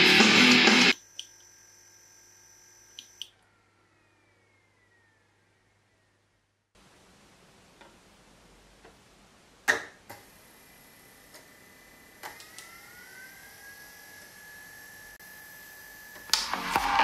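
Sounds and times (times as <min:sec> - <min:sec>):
disc drive motor whine: 0:00.0 - 0:05.2, 0:10.1 - 0:17.0.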